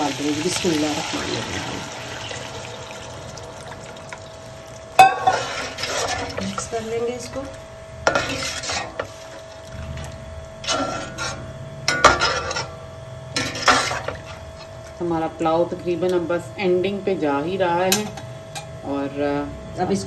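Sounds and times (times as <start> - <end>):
ladle clanking and scraping in pot: 5.0 - 6.7, 8.1 - 12.8, 13.4 - 14.7.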